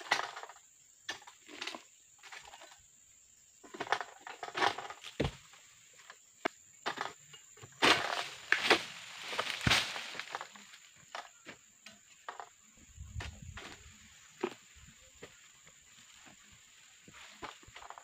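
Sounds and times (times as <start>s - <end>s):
rustling and scraping of fronds: 7.7s - 11.4s, 12.2s - 18.0s.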